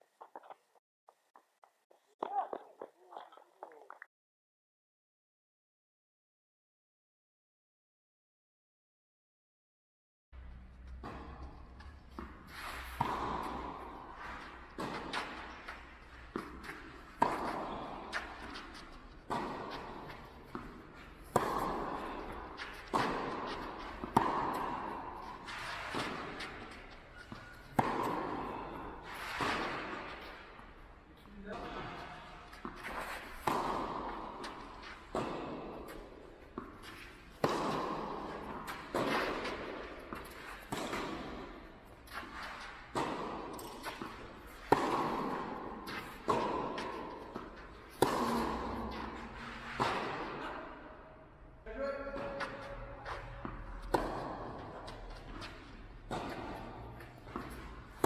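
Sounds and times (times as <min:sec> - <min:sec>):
tennis ball hit by rackets: 0:10.9 - 0:30.8, 0:31.6 - 0:51.0, 0:52.1 - 0:58.0.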